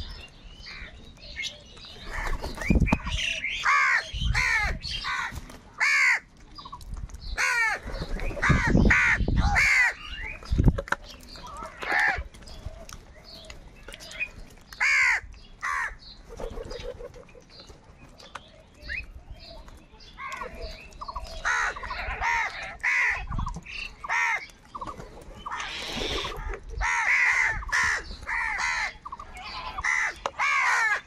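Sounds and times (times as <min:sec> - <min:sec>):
crows cawing: 0:03.6 - 0:06.3, 0:07.4 - 0:07.8, 0:08.4 - 0:10.0, 0:14.8 - 0:16.0, 0:21.4 - 0:23.3, 0:24.0 - 0:24.5, 0:25.5 - 0:31.0.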